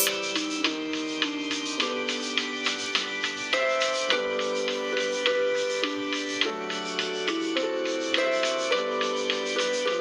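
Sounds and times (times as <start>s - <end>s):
light steady beat: 0.0s - 3.1s.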